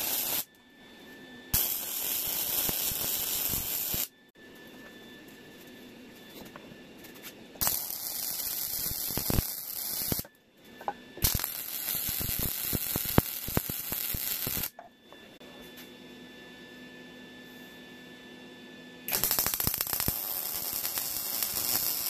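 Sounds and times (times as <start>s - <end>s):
welding arc crackling and hissing: 0.0s - 0.5s, 1.5s - 4.1s, 7.6s - 10.3s, 11.2s - 14.8s, 19.1s - 22.0s.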